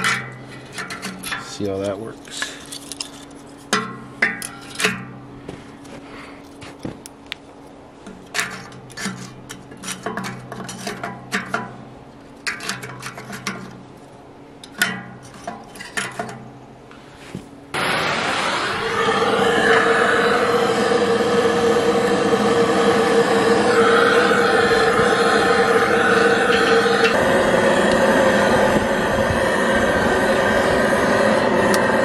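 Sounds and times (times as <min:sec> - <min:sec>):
gas torch hissing: 0:17.0 - 0:32.0.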